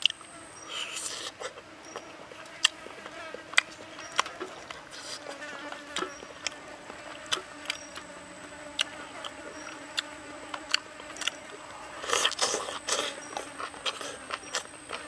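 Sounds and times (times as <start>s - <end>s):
biting and chewing: 0.0s - 15.0s
faint insect buzz: 0.0s - 15.0s.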